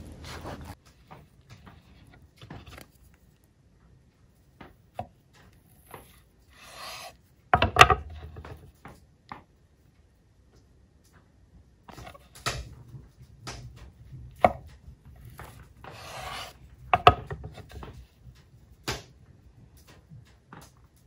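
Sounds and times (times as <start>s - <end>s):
knife slicing: 5.5s - 7.3s, 14.4s - 16.6s.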